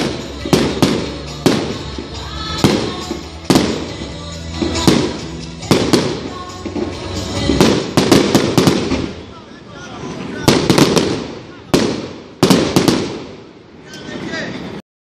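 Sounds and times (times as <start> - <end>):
music playing: 0.0 - 9.4
fireworks bursting with sharp bangs: 0.0 - 14.8.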